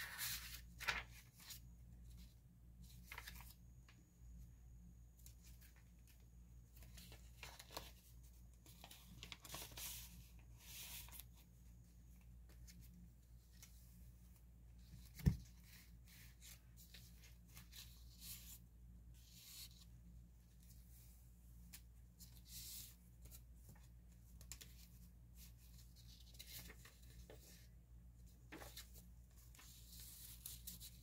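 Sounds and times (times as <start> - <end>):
paper pages rustling: 0.0 - 3.6, 5.2 - 11.4, 22.8 - 27.7, 28.4 - 31.0.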